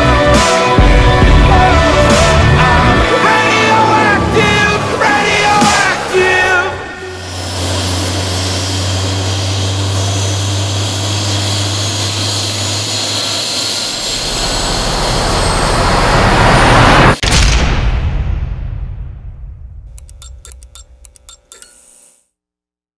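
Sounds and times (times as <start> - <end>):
jet-like engine noise: 7.0 - 17.2
low hum: 18.8 - 22.2.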